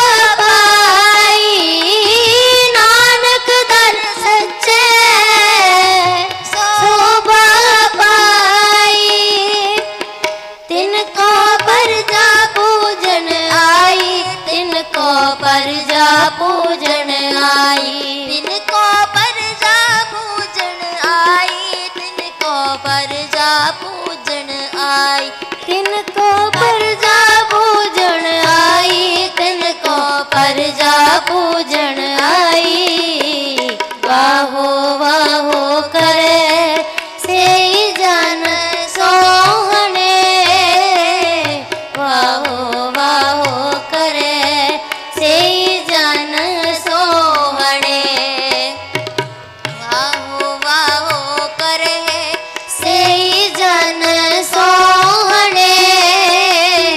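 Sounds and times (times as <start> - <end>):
harmonium: 0.0 - 56.9
tabla rhythm: 0.0 - 56.9
voices singing: 49.8 - 56.9.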